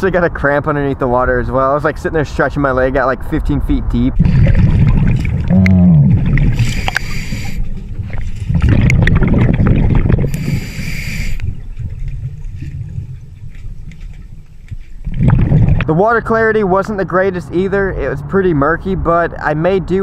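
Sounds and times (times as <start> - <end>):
gurgle of exhaled bubbles: 4.1 - 13.8, 15.0 - 15.9
diver inhaling through regulator: 6.4 - 7.8, 10.2 - 11.6.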